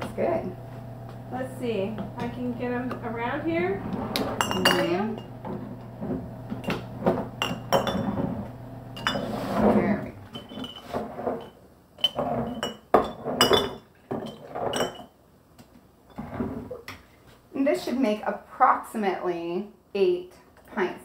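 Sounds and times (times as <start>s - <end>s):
glass jars clinking: 4.4s - 5.5s, 6.5s - 15.2s.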